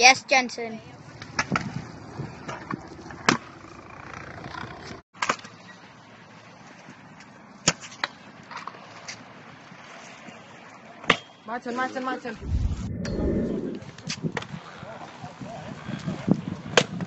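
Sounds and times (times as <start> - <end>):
scooter wheels rolling on concrete: 0.9 - 5.0, 13.8 - 17.0.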